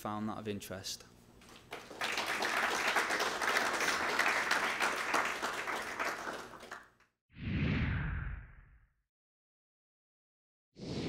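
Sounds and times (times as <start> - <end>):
audience applauding: 1.5 - 7.0.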